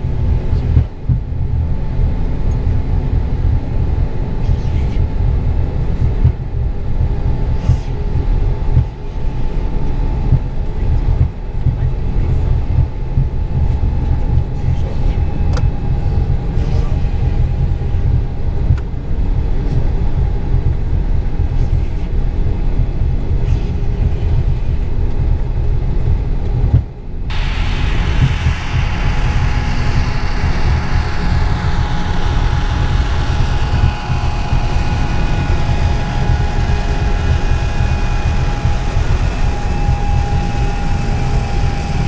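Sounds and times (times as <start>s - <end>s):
jet engines rumbling: 27.3s - 42.0s
sharp jet whine and hiss: 27.3s - 42.0s.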